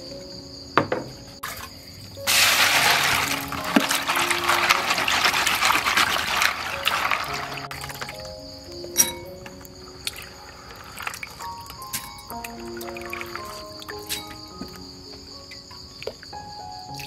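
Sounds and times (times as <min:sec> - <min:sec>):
water splashing in a basin: 0:01.4 - 0:08.3, 0:10.0 - 0:14.4.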